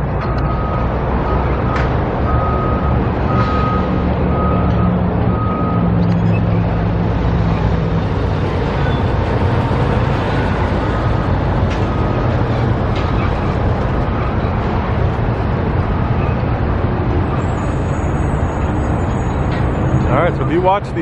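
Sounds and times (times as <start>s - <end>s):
engine running: 0.0s - 21.0s
traffic: 0.0s - 21.0s
reversing alarm beeping: 0.2s - 6.9s, 8.7s - 16.6s, 17.2s - 21.0s.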